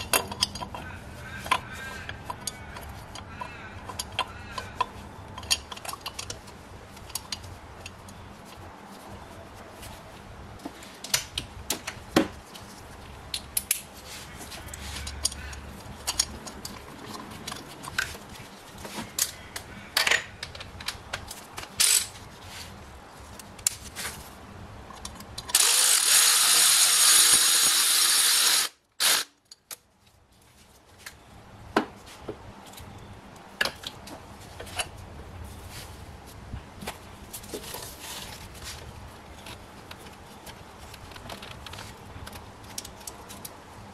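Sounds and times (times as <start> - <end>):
loud steady hiss: 25.6 - 29.3.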